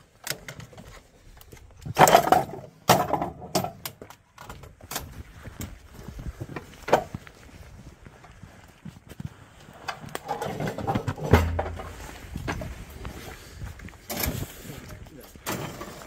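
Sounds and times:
metal clanks and knocks: 0:01.9 - 0:04.0, 0:10.2 - 0:12.7.

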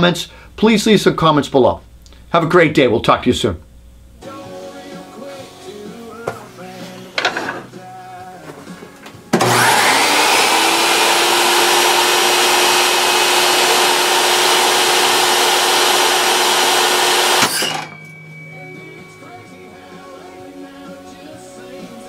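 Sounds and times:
table saw running: 0:09.4 - 0:18.0
sharp bang of saw brake: 0:17.4 - 0:18.0.

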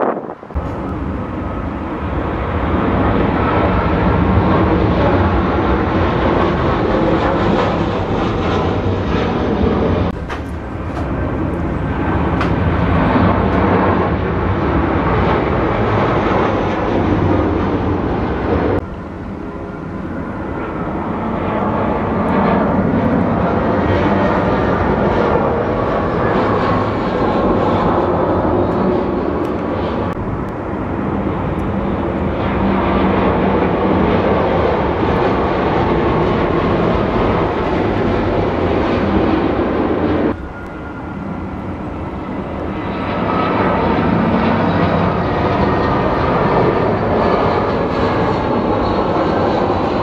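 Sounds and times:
jet airliner engine noise: 0:00.0 - 0:50.0.

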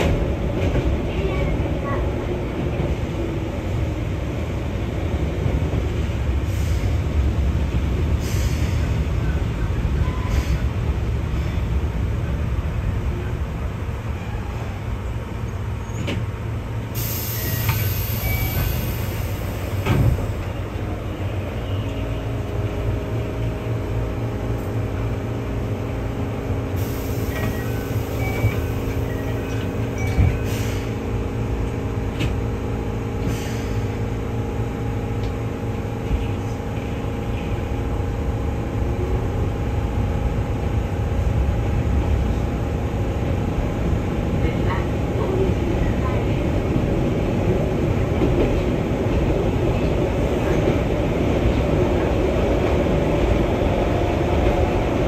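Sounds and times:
wheels rumbling on rail: 0:00.0 - 0:55.0
train clunks: 0:15.8 - 0:21.0, 0:26.8 - 0:32.6.

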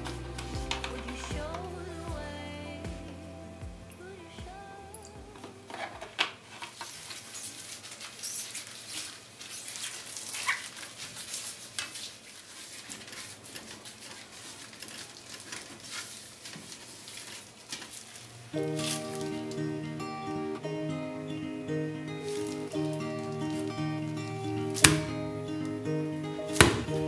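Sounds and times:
paper towel wiping inside pot: 0:07.1 - 0:19.3.

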